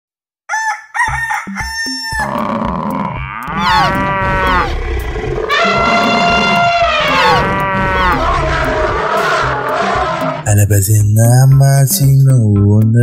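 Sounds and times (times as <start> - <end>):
rooster crowing: 0.5 - 2.5, 3.3 - 4.7, 5.4 - 10.4
farm animal sounds: 0.5 - 10.4.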